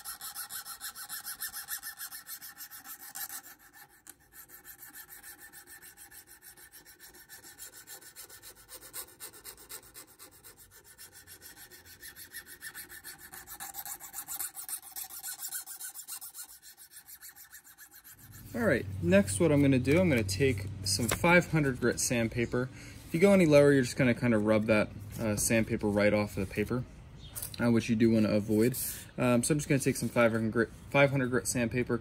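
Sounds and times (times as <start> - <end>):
file rasping on steel: 0.0 - 20.0.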